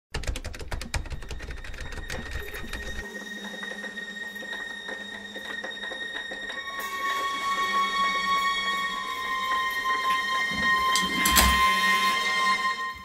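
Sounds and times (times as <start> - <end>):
steady high tone: 3.0 - 13.0.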